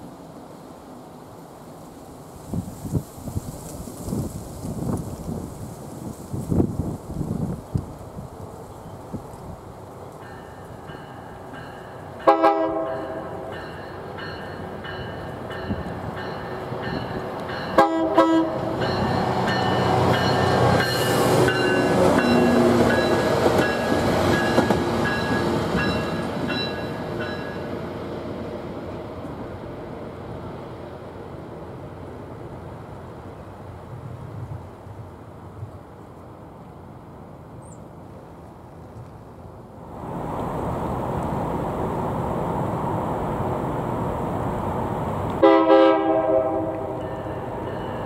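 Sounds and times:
train engines and wheels passing: 0.0 - 48.0
train horn blast: 12.2 - 13.5, 17.7 - 23.2, 45.4 - 47.1.

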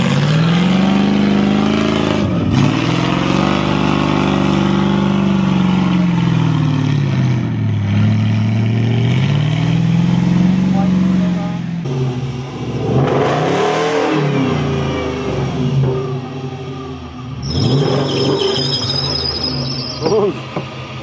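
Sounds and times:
engine revving hard: 0.0 - 16.1, 17.4 - 18.9.

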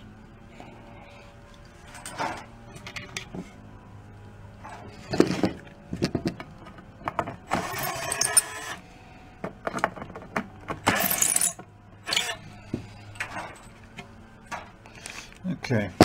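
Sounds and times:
metal parts clinking: 7.6 - 8.7, 10.8 - 12.3.

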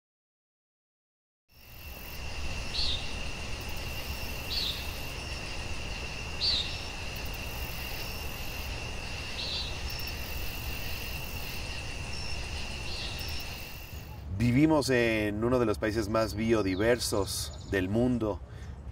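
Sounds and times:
high insect drone: 1.5 - 14.3.

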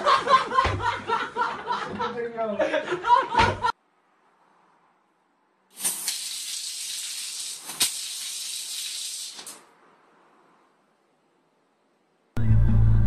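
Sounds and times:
water jet hissing on tiles: 5.7 - 9.7.

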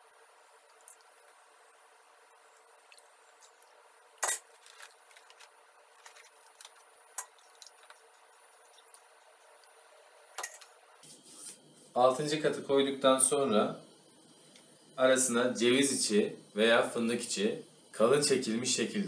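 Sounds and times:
metal ladle clinking on metal bowl: 10.4 - 10.7.

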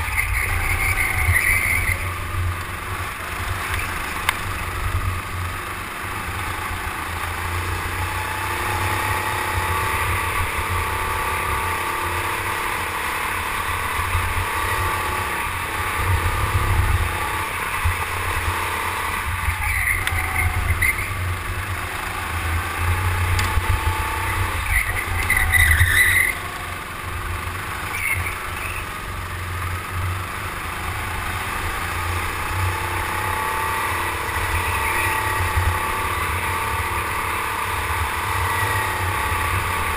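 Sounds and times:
short high squeals: 0.0 - 2.2, 19.4 - 21.4, 24.2 - 26.7
go-kart motor: 0.0 - 39.9.

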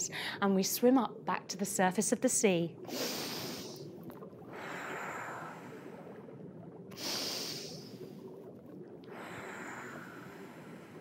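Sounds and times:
woman breathing deeply: 2.9 - 3.9, 4.5 - 6.2, 7.0 - 8.1, 9.1 - 11.0.

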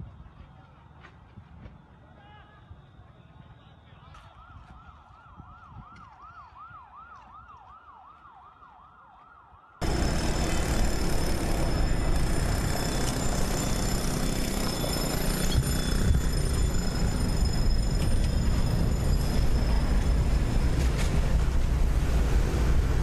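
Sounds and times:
distant emergency siren: 1.8 - 23.0
steady rushing noise: 15.0 - 23.0.

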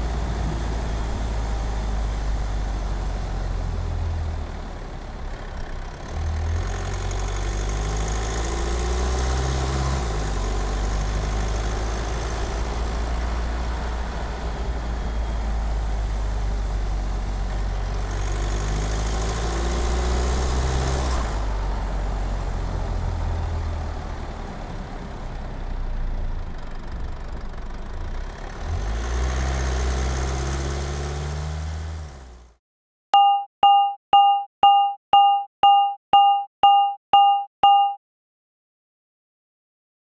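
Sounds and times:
vehicle engine idling and revving: 0.0 - 32.6
timer alarm beeping rapidly: 33.2 - 38.0.

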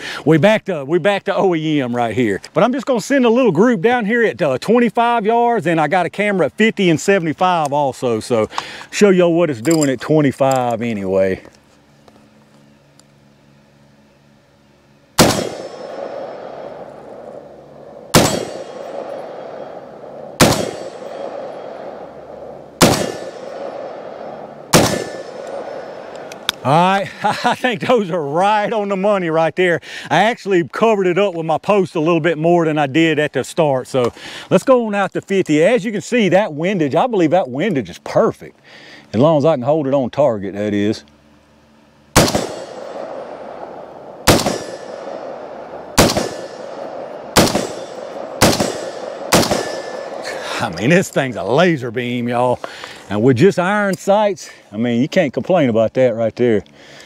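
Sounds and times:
steel targets ringing: 15.2 - 26.4, 42.2 - 51.6
rifle shots with echo: 15.2 - 26.6, 42.2 - 50.4.

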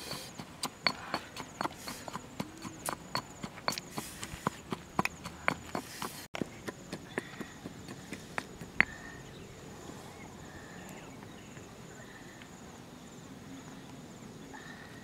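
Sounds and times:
insects chirping: 0.0 - 15.0
pestle knocking in a mortar: 0.2 - 9.0.

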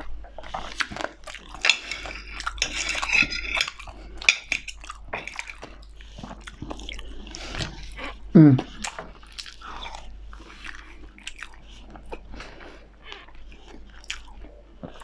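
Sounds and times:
chewing: 0.0 - 15.0
cutlery scraping a plate: 1.6 - 5.6.

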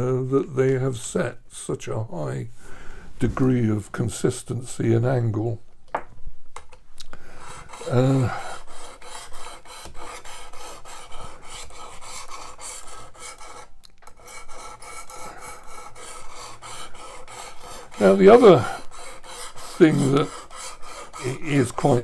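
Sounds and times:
sharpening plate rasping on knife edge: 14.2 - 22.0.

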